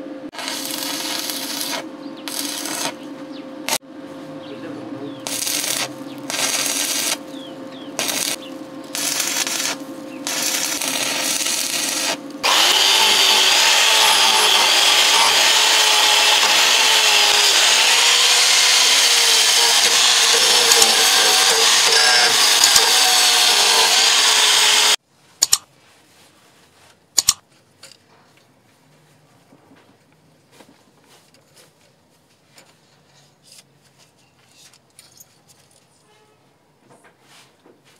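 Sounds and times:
angle grinder wire brush: 0.3 - 3.0, 5.2 - 25.0
welding arc crackling: 0.3 - 3.0, 5.2 - 25.6
sharp clicks: 25.4 - 25.6, 27.2 - 27.4.

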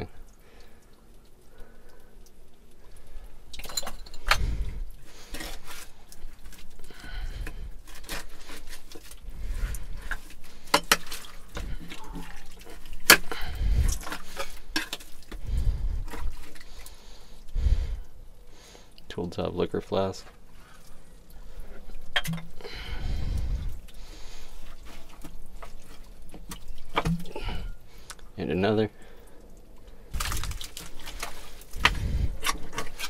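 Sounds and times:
digging scraping: 30.1 - 33.0.

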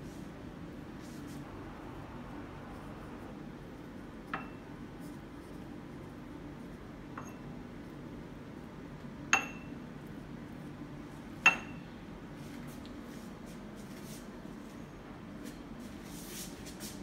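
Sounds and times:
steady low hum: 0.0 - 17.0
dishware clinking: 9.4 - 9.7.

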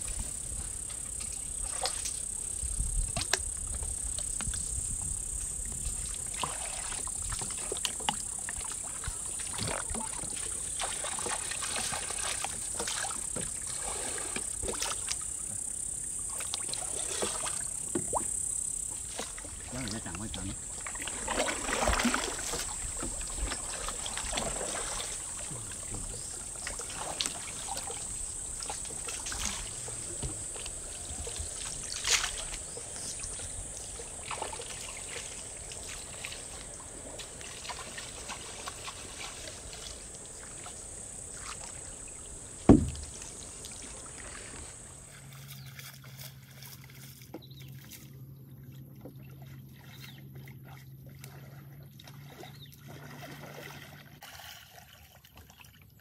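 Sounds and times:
water sloshing and trickling: 0.0 - 56.0
knocks and thump: 30.0 - 30.7, 42.6 - 43.2.

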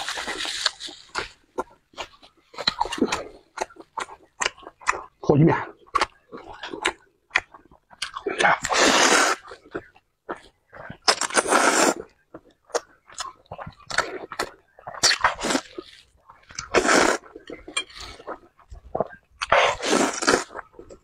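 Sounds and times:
wet chewing: 0.0 - 21.0
person slurping noodles: 8.2 - 9.6, 11.1 - 12.1, 14.0 - 15.8, 16.6 - 20.9.

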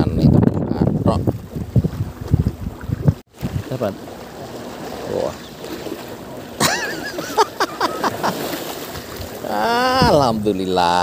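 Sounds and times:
water noise: 0.0 - 11.0
wind: 0.0 - 11.0
man exclaiming: 9.4 - 10.4.

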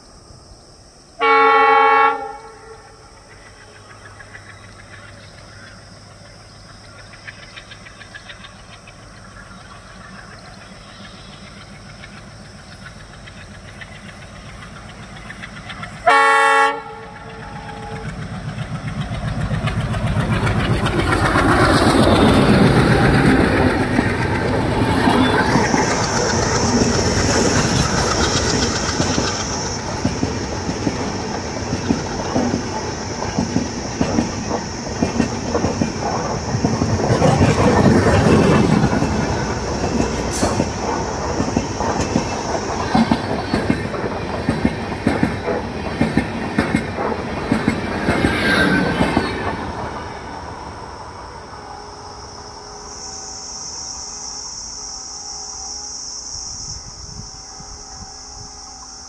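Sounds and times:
locomotive horn blasts: 1.2 - 2.8, 16.0 - 18.0, 57.4 - 59.0
train coaches clattering on rails: 2.3 - 50.8
wheel squeal: 17.1 - 31.2.

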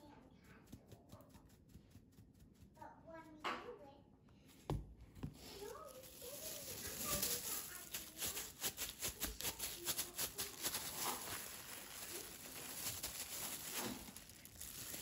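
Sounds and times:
plastic bag crinkling: 5.4 - 15.0.

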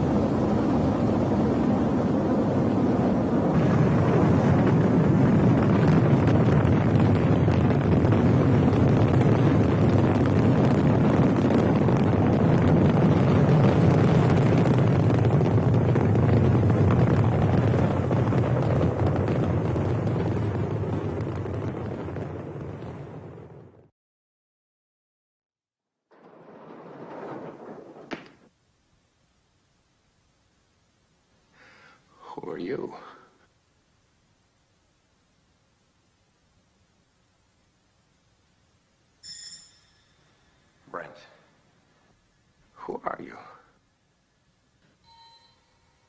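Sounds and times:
rocket engines rumbling: 0.0 - 23.9, 26.1 - 28.5.

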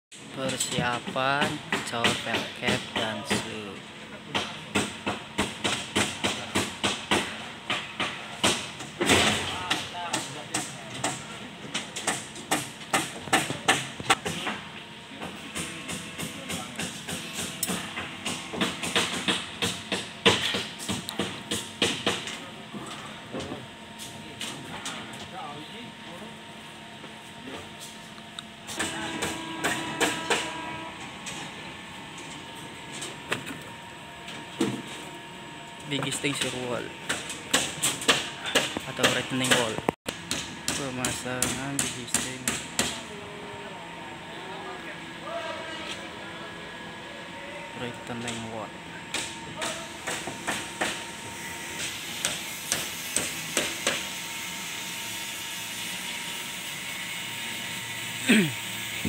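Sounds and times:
steady hum: 0.1 - 59.0
hammer strikes: 0.5 - 3.6, 4.3 - 14.6, 15.2 - 22.4, 28.7 - 30.7, 36.2 - 43.0, 49.1 - 54.1.

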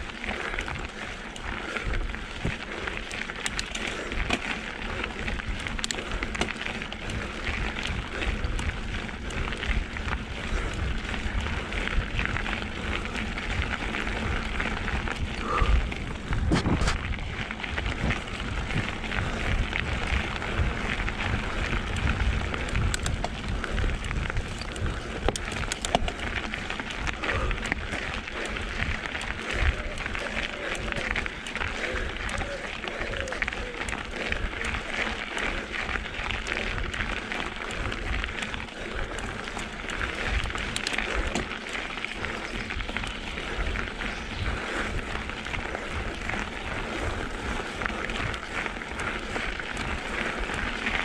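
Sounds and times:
bike tyres crunching on dirt: 0.0 - 51.0
bike knocks and rattles: 39.0 - 43.3.

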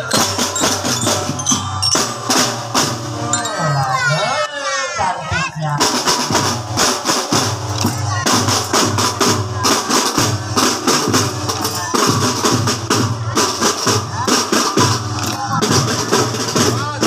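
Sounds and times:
drums steady beat: 0.0 - 4.5, 5.2 - 17.0
held pitched tones: 0.0 - 4.5.

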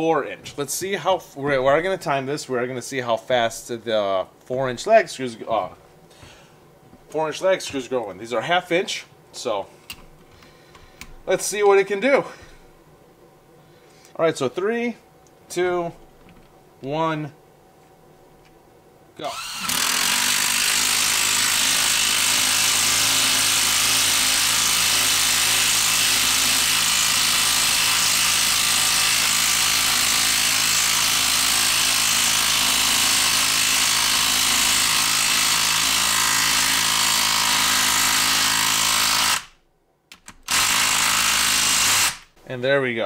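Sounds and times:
impact driver hammering: 19.6 - 39.5, 40.4 - 42.2.

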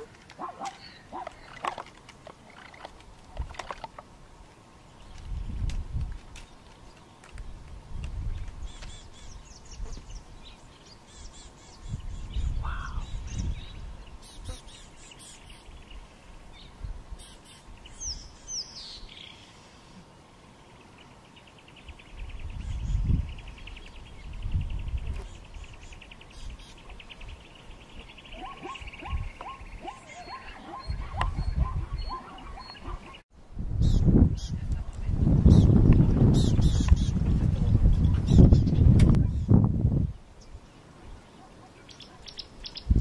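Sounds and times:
wild birds chirping: 0.0 - 43.0.

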